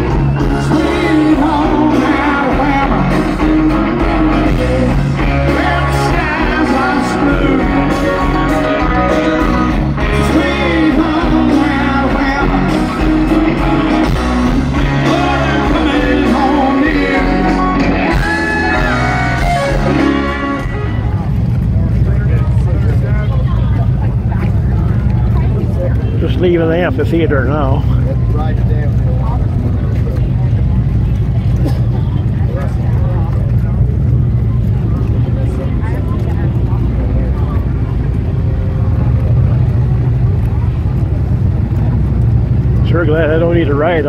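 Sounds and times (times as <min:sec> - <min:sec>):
live band playing: 0:00.0 - 0:22.6
deep bass: 0:00.0 - 0:44.0
person singing: 0:00.4 - 0:13.8, 0:14.8 - 0:20.3.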